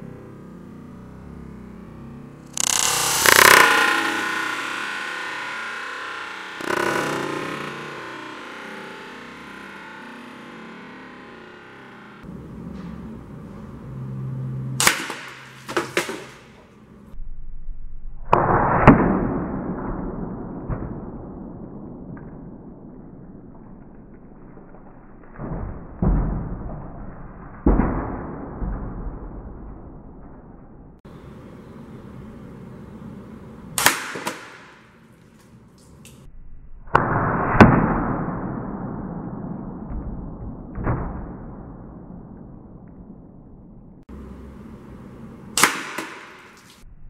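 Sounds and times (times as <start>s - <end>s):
sharp cracks: 2.4s - 13.0s, 14.8s - 17.2s, 33.7s - 36.3s, 44.0s - 46.9s
pellet striking drink cans: 14.8s - 16.7s.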